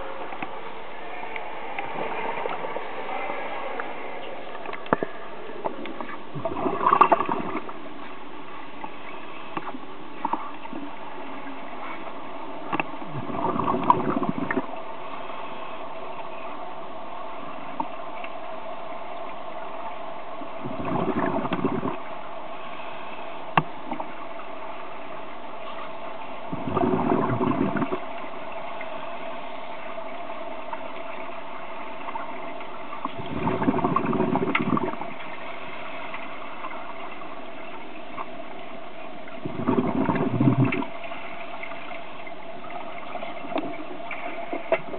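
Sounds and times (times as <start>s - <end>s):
steady hum: 0.0s - 44.9s
regulator exhalation bubbles underwater: 4.6s - 7.8s, 13.1s - 14.7s, 20.6s - 22.0s, 26.5s - 28.1s, 33.0s - 35.2s, 39.4s - 41.0s.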